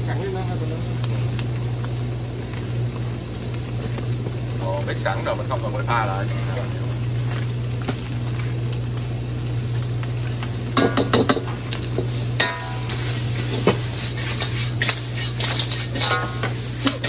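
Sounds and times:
constant low hum: 0.0s - 17.0s
food sizzling in a pan: 0.0s - 17.0s
metal utensil scraping a pan: 12.2s - 17.0s.

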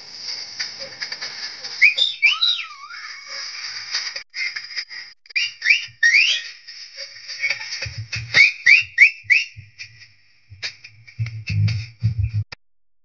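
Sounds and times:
people whistling: 1.8s - 3.3s, 5.3s - 6.6s, 8.3s - 9.9s
steady high whistle-like tone: 1.8s - 3.4s, 5.3s - 10.0s.

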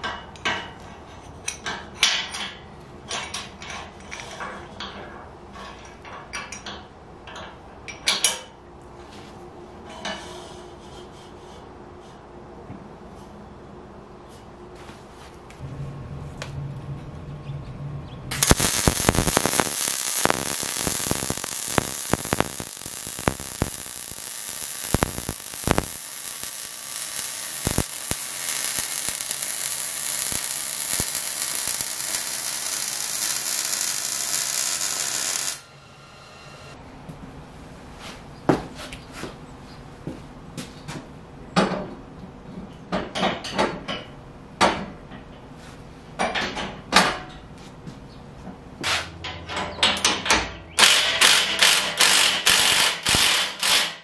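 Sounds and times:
welding arc crackling and hissing: 18.3s - 35.7s, 50.8s - 54.0s.

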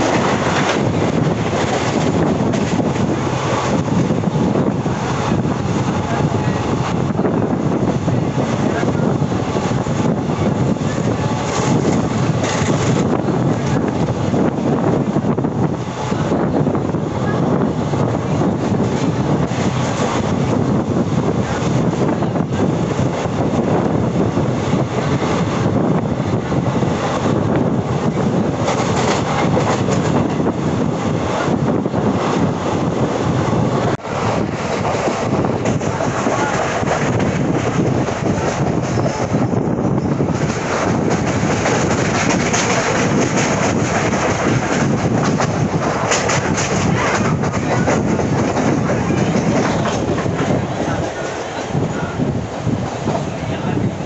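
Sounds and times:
train wheels rushing on track: 0.0s - 54.0s
wind buffeting microphone: 0.0s - 54.0s.

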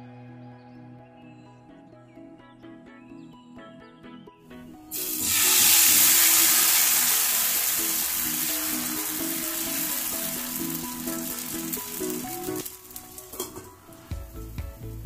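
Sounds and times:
batter sizzling in frying pan: 4.9s - 15.0s.

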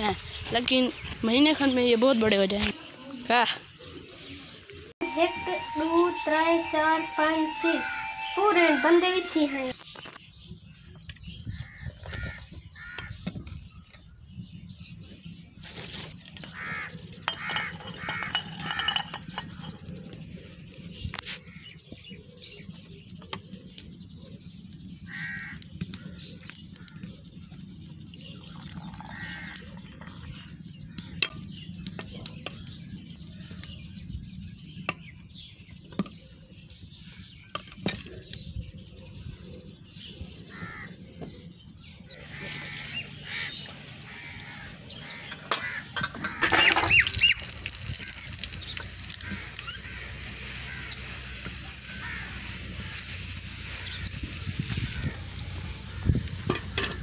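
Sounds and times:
crows cawing: 11.6s - 13.2s, 16.4s - 18.3s, 25.1s - 26.2s, 28.9s - 29.7s, 40.5s - 41.0s, 42.1s - 47.0s, 49.1s - 53.0s, 54.8s - 55.4s.

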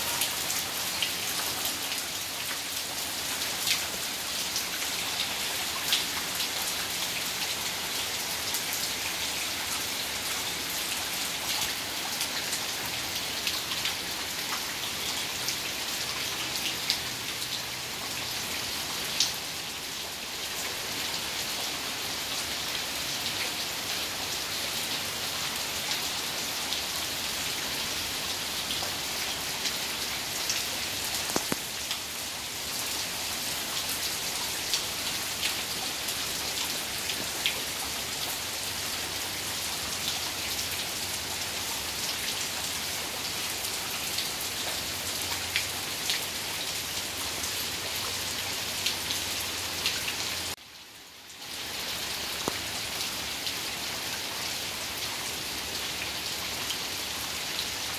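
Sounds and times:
heavy rain: 0.0s - 57.9s
single raindrops pattering: 31.2s - 32.1s, 52.4s - 52.6s.

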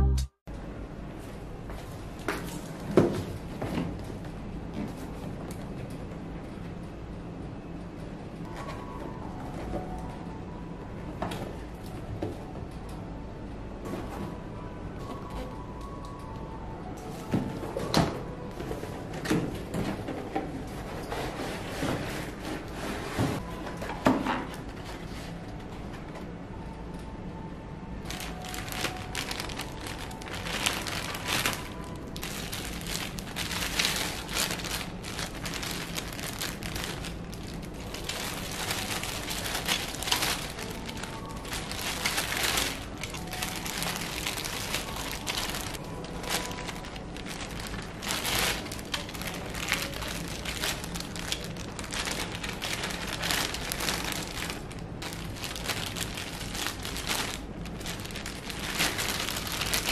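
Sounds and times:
plastic bags crinkling: 28.0s - 59.9s.

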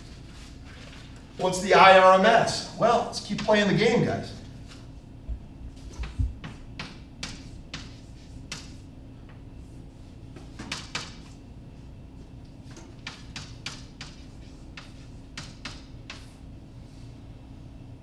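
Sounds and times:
low room hum: 0.0s - 18.0s
chalk tapping on blackboard: 6.0s - 8.8s, 10.4s - 11.4s, 12.9s - 16.4s.

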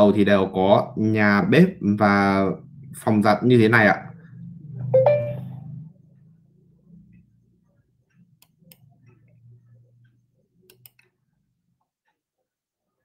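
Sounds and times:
faint low hum: 0.1s - 13.0s
computer mouse clicks: 8.0s - 9.4s, 10.0s - 11.2s.

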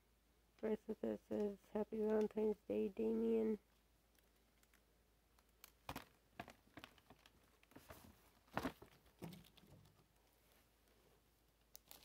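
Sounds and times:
plastic beads clicking: 3.7s - 6.1s, 11.6s - 12.0s.

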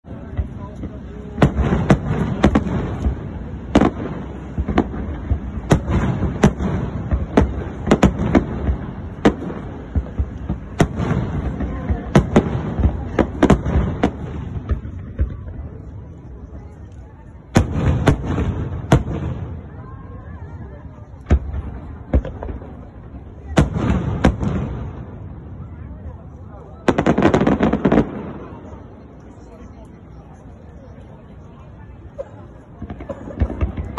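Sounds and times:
fireworks bursting bangs: 0.0s - 29.4s, 32.0s - 33.9s
rumble of fireworks bursts: 0.0s - 33.9s.

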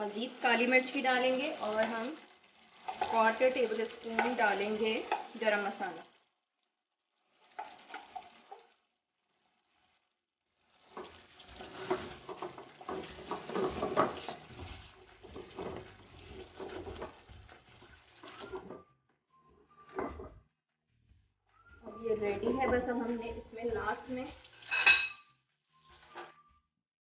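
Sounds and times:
curry sizzling: 0.0s - 20.2s, 21.6s - 26.6s
spatula scraping a pan: 2.5s - 5.3s, 7.0s - 18.8s, 23.9s - 26.5s.

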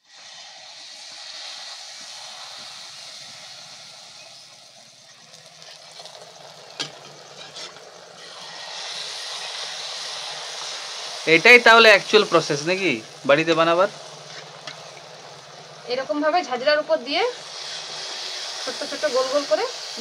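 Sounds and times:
batter sizzling in hot oil: 0.0s - 20.0s.

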